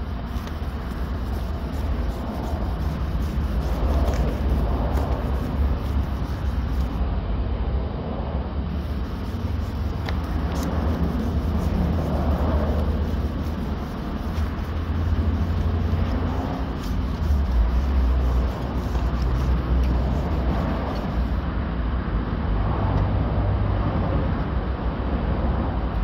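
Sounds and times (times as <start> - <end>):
sanding block rubbing paint: 0.0 - 7.0, 8.7 - 21.4
steady low rumble: 0.0 - 26.0.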